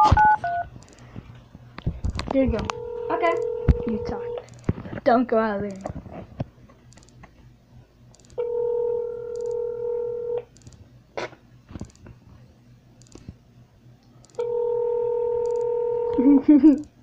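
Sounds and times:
telephone ringback tone: 2.7s - 4.4s, 8.4s - 10.4s, 14.4s - 16.2s.

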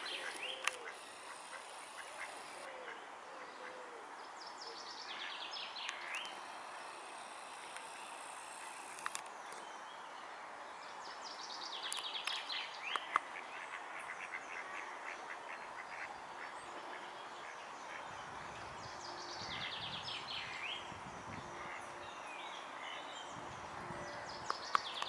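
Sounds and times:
birds chirping: 0.0s - 10.2s, 10.9s - 25.0s
steady outdoor hiss: 0.0s - 25.0s
sharp clicks: 0.2s - 2.7s, 5.8s - 9.3s.

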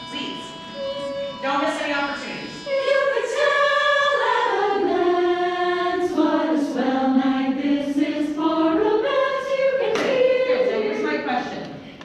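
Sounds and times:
choir singing held notes: 0.0s - 11.8s.

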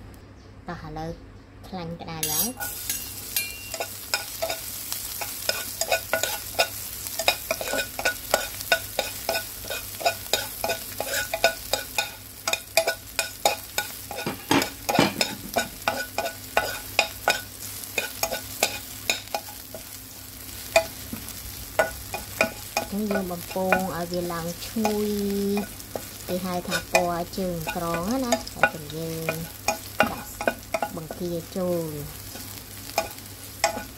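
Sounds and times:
garlic sizzling: 2.2s - 33.9s
spatula scraping frying pan: 2.2s - 33.9s.

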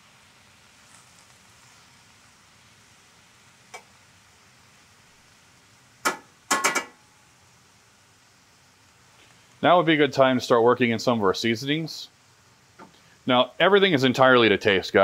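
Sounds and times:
cabbage sizzling in pan: 0.0s - 15.0s
metal utensil clanking on skillet: 6.1s - 7.0s.

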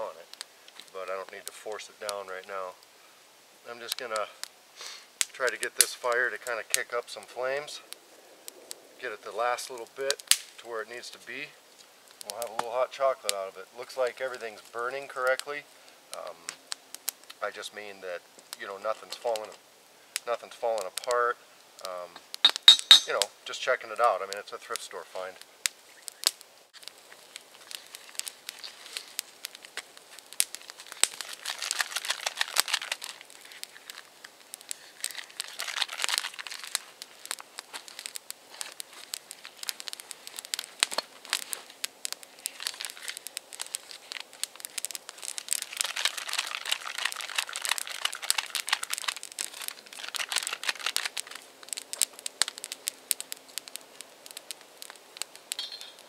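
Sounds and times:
wood fire crackling and popping: 0.0s - 56.0s
crinkling and rustling: 24.3s - 56.0s.

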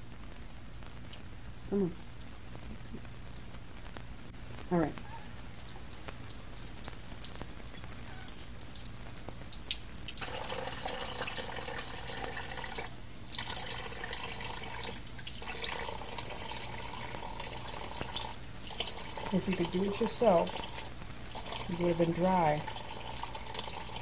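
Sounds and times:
water drips: 0.1s - 4.4s, 5.0s - 24.0s
tap water running into sink: 5.6s - 24.0s.

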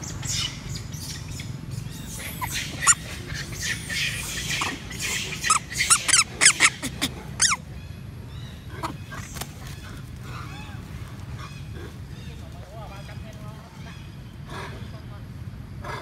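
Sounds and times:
young monkey squealing: 0.2s - 7.6s.

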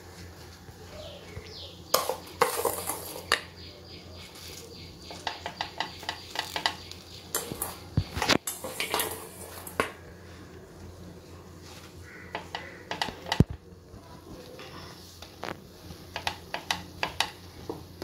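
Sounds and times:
metal spoon scraping griddle pan: 1.9s - 3.4s, 5.2s - 9.9s.

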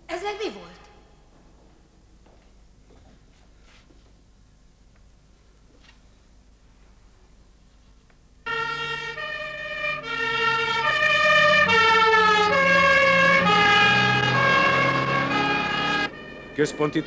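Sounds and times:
two-tone siren: 8.4s - 17.0s
vehicle engine and road noise: 8.5s - 17.0s.

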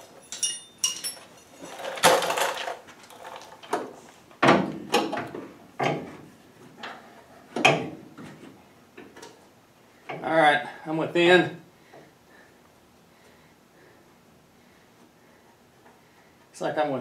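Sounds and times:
hand tools clanking on metal: 0.0s - 3.4s.

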